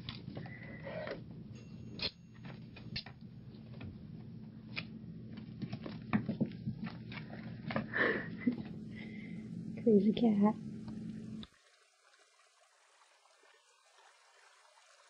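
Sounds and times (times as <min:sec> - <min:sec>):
cat paws tapping on wood floor: 0:05.3 - 0:08.8.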